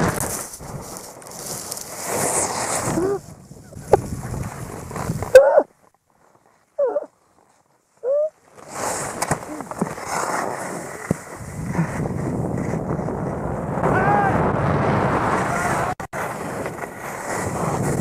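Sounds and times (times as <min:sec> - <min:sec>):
skis scraping snow: 0:00.0 - 0:13.6, 0:14.9 - 0:18.0
wind on microphone: 0:02.8 - 0:05.5, 0:11.3 - 0:18.0.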